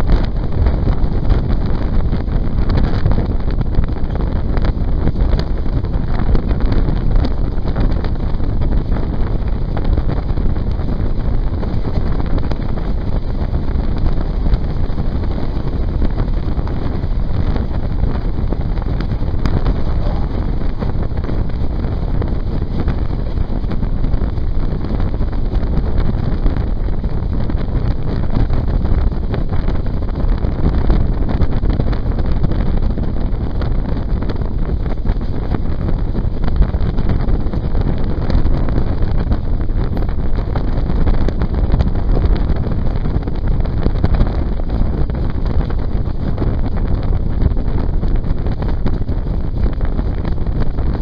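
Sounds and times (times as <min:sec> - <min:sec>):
wind buffeting microphone: 0:00.0 - 0:51.0
train running noise: 0:18.5 - 0:24.5.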